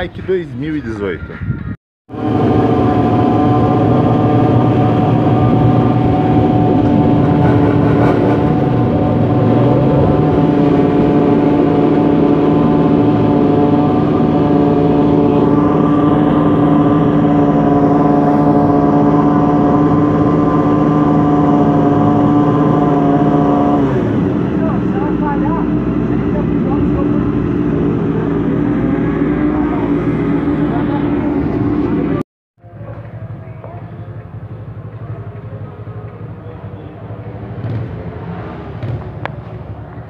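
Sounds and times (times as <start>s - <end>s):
motorcycle engine drone: 1.4s - 40.0s.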